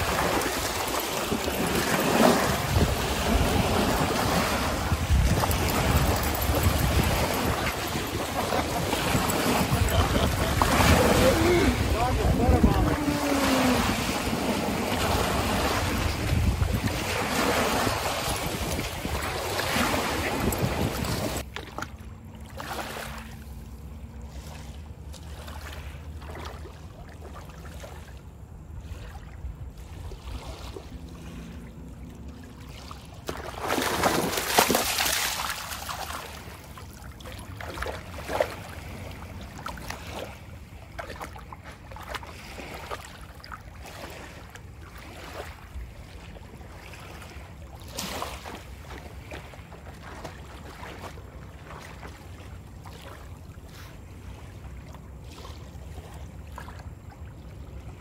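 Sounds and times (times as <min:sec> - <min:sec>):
waves breaking on rocky shore: 0:00.0 - 0:21.4
wind buffeting microphone: 0:00.0 - 0:21.4
water lapping and splashing: 0:00.0 - 0:58.0.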